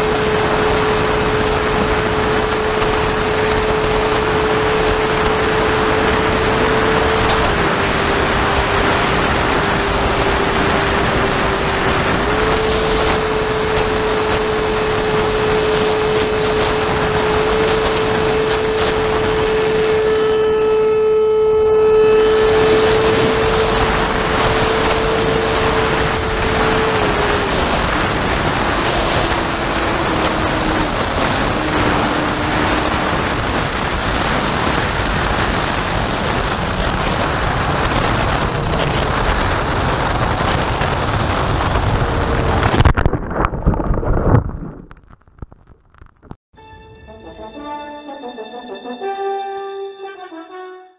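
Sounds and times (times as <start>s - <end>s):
electric motor whine: 0.0s - 35.5s
plane landing in grass: 0.0s - 42.7s
wind rushing past camera: 0.0s - 45.6s.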